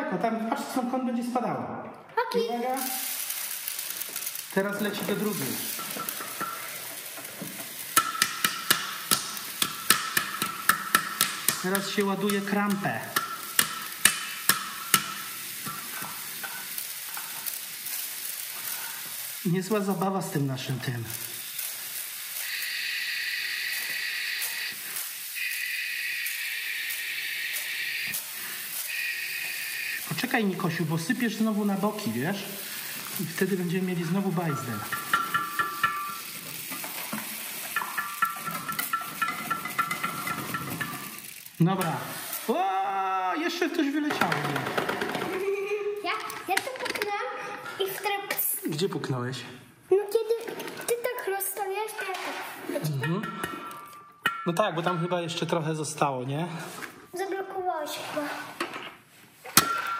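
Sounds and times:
grains pouring and trickling: 2.7 - 7.9, 15.2 - 43.9.

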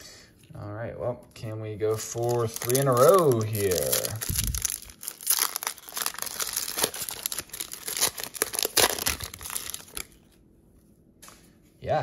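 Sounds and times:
plastic wrapper tearing and crinkling: 1.9 - 10.3.

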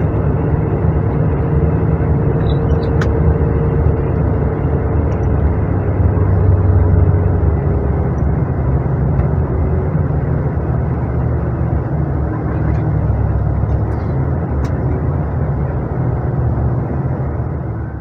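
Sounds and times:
bus engine and road rumble: 0.0 - 18.0.

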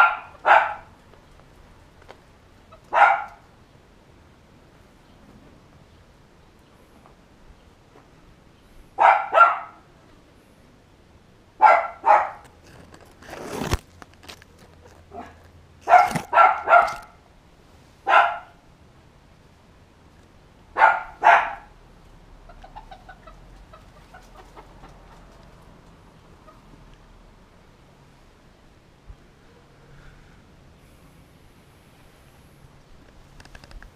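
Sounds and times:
dog barking: 0.0 - 0.9, 2.9 - 3.4, 9.0 - 9.8, 11.6 - 12.5, 15.1 - 17.2, 18.0 - 18.6, 20.8 - 21.7.

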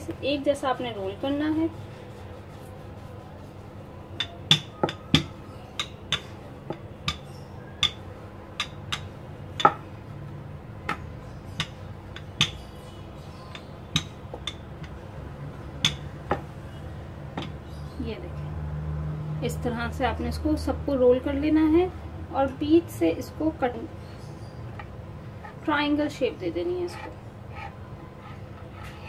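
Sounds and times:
rolling pin knocking on wooden board: 4.2 - 8.0, 8.6 - 9.9, 10.8 - 12.6, 13.6 - 15.0, 15.8 - 16.5.

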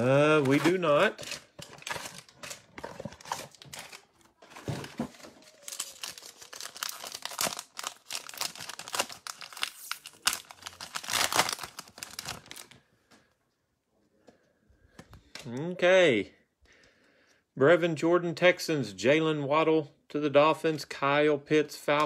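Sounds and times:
foil wrapper tearing and crinkling: 0.0 - 4.2, 5.2 - 12.8.

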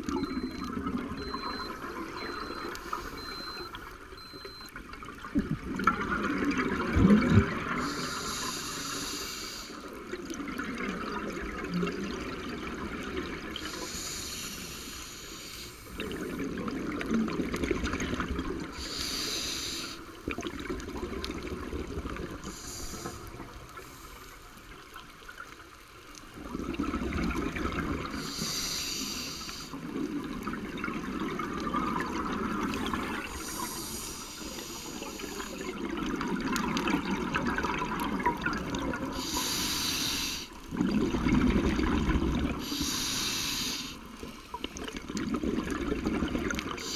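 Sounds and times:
exhaled air bubbling: 0.0 - 8.8, 15.7 - 25.4, 26.2 - 46.9
regulator inhale hiss: 7.8 - 9.9, 13.6 - 16.0, 18.8 - 20.1, 22.4 - 24.6, 28.2 - 29.8, 33.4 - 35.7, 39.1 - 40.6, 42.6 - 44.1.

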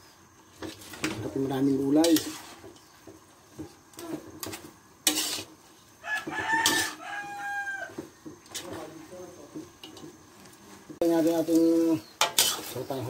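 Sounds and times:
metal ladle scraping a wok: 0.6 - 8.9, 11.2 - 13.0
rooster crowing: 6.0 - 8.1.

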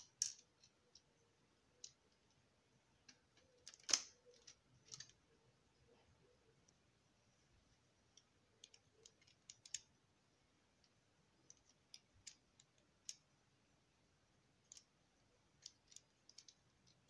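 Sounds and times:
plastic parts clicking together: 3.0 - 5.2, 8.1 - 9.9, 14.6 - 14.9, 15.5 - 17.0.

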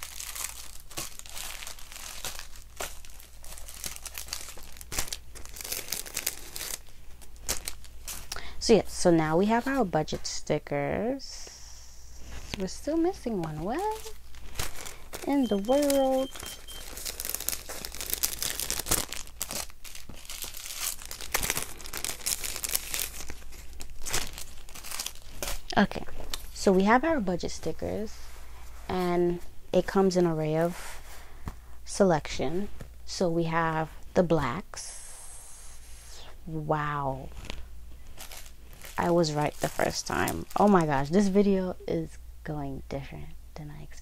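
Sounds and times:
paper sheets rustling and crinkling: 12.3 - 26.6.

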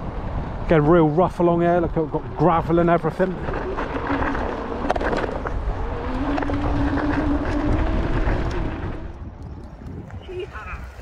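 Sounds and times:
scooter wheels rumbling on gravel: 0.0 - 11.0
electric motor whine: 3.3 - 9.2.

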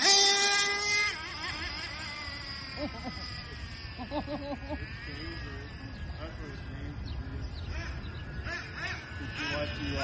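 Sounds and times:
rc truck motor whining: 0.0 - 7.0.

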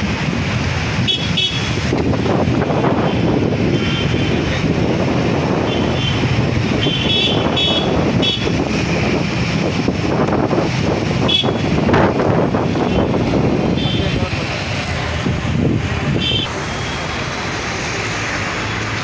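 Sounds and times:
wind on microphone: 0.0 - 16.5
engine and road rumble: 0.0 - 19.0
vehicle horn toots: 1.0 - 1.8, 6.8 - 8.6, 11.2 - 11.7, 16.2 - 17.0.

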